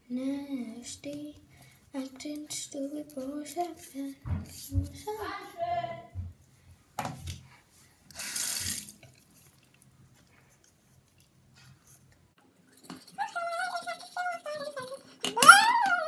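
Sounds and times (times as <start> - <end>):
tap water running: 8.1 - 9.8.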